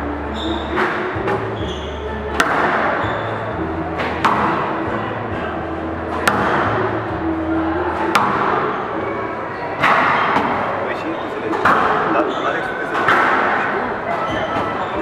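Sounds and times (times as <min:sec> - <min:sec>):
squash ball cracks: 0:02.3 - 0:03.0, 0:04.0 - 0:04.8, 0:06.1 - 0:06.8, 0:08.0 - 0:08.8, 0:09.8 - 0:10.7, 0:11.5 - 0:12.2, 0:12.9 - 0:14.8.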